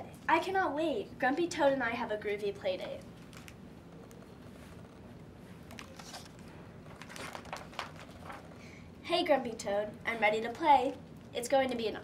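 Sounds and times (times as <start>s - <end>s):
book pages rustling: 2.8s - 8.6s.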